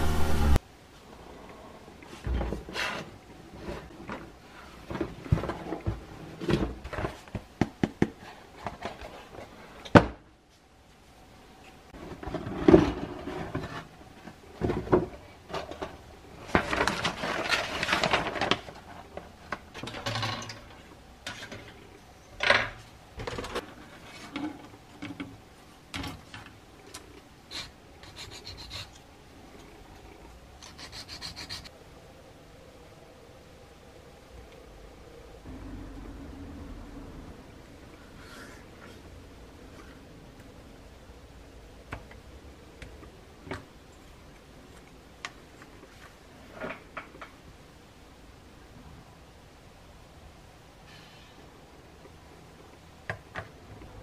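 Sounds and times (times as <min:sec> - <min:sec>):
plastic parts rubbing: 0:30.6 - 0:31.7.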